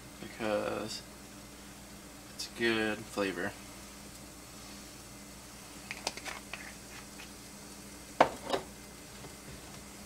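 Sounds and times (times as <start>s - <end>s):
pepper shaker clicks and taps: 5.9s - 7.3s.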